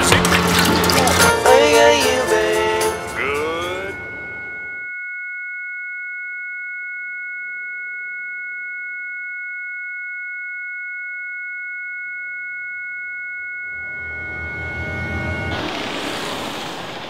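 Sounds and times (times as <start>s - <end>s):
music: 0.0s - 4.8s
high-pitched two-note electronic tone: 1.3s - 5.0s, 12.3s - 15.6s
rising electronic sweep: 13.7s - 17.0s.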